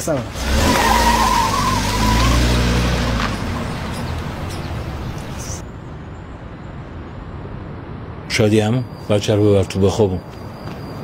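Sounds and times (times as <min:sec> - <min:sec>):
outdoor hum: 0:00.0 - 0:11.0
street noise: 0:00.0 - 0:11.0
car driving away: 0:00.1 - 0:05.6.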